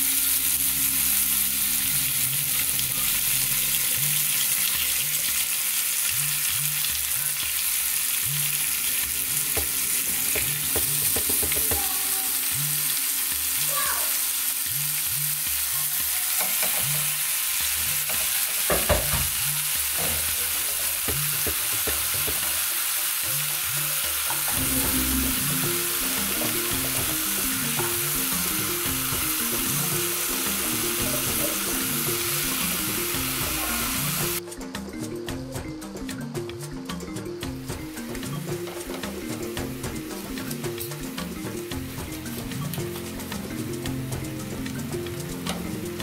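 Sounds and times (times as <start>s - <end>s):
background music with bass: 0.0s - 16.2s, 16.8s - 46.0s
fish sizzling in oil: 0.0s - 34.4s.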